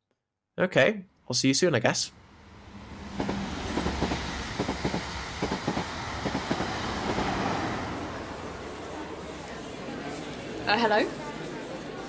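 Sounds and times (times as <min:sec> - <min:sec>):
train rumbling on rails: 0:02.1 - 0:10.8
wheels clacking: 0:03.0 - 0:10.7.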